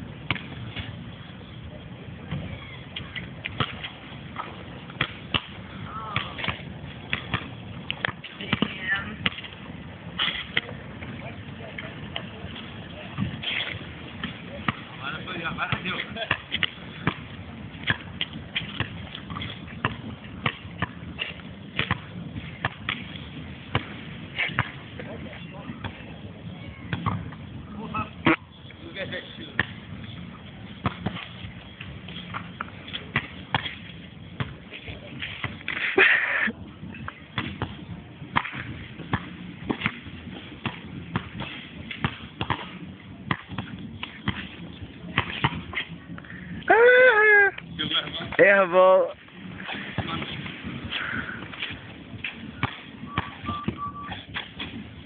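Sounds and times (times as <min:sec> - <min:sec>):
background noise: 0:00.0 - 0:55.0
basketball bouncing on concrete: 0:00.2 - 0:01.0, 0:02.2 - 0:09.6, 0:14.1 - 0:24.9, 0:26.9 - 0:27.4, 0:29.5 - 0:29.9, 0:30.8 - 0:35.7, 0:37.0 - 0:45.9, 0:51.4 - 0:54.9.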